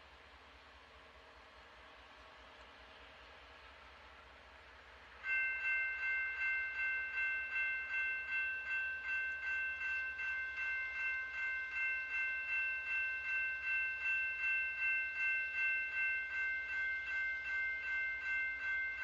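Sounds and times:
crossing warning bell ringing: 0:05.2 - 0:19.0.

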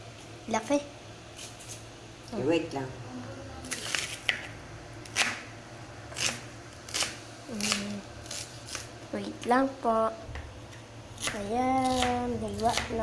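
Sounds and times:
knife chopping on cutting board: 0:05.1 - 0:05.5, 0:11.2 - 0:13.0.

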